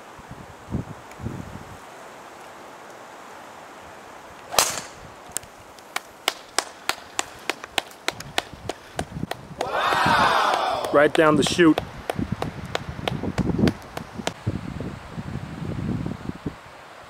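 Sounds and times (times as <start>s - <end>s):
golf club striking ball: 4.5s - 5.1s.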